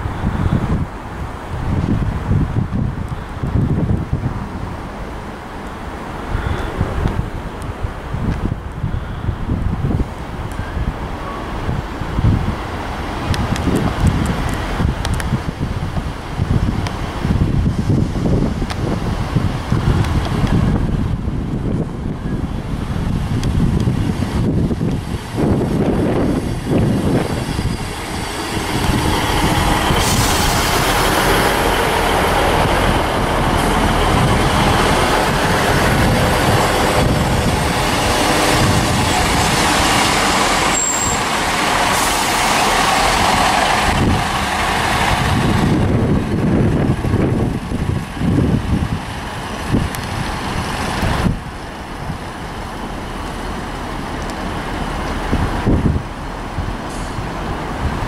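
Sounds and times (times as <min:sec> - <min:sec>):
diesel train engines: 0:00.0 - 0:58.0
wheels hissing and rumbling: 0:00.0 - 0:58.0
high wheel squeal: 0:36.0 - 0:42.8.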